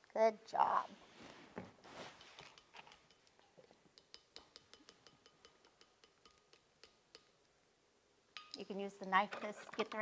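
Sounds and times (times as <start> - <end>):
spoon tapping blender jar rim: 4.0 - 7.4.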